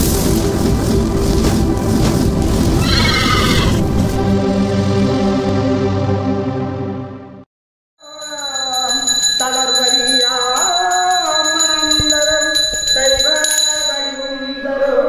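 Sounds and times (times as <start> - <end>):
bells ringing rapidly: 8.0 - 15.0
steady high ringing tone: 8.0 - 15.0
held sliding devotional melody: 8.5 - 15.0.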